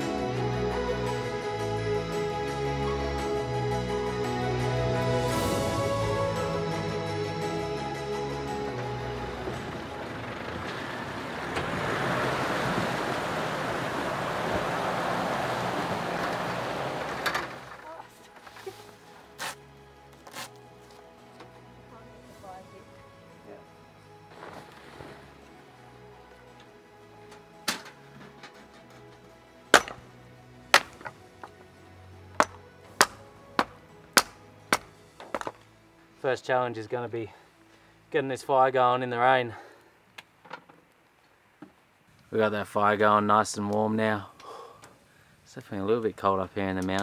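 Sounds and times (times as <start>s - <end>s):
soft background music: 0.0s - 16.5s, 17.6s - 39.8s, 45.6s - 47.0s
vehicle engine running: 5.8s - 17.8s
water rushing and splashing: 8.6s - 17.8s, 22.2s - 26.1s
firewood chopping knocks: 29.8s - 30.0s, 32.4s - 35.6s.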